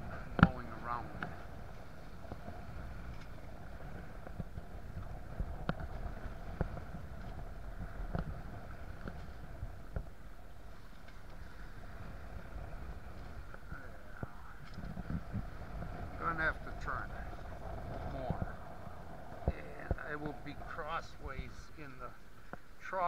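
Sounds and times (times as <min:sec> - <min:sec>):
faint steady hum: 0:00.0 - 0:23.0
wind and water rushing: 0:00.0 - 0:23.0
hull knocking on waves: 0:00.1 - 0:01.5.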